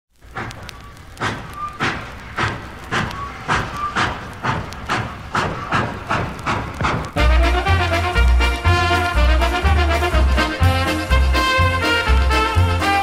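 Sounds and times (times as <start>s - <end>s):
steam locomotive chuffing: 0.2s - 13.0s.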